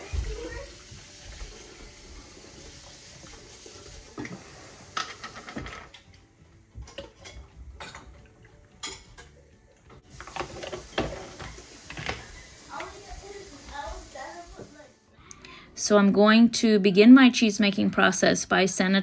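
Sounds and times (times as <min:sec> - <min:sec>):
liquid pouring: 0:00.0 - 0:05.6, 0:07.8 - 0:14.2
metal utensils clinking: 0:04.1 - 0:06.2, 0:06.8 - 0:13.0.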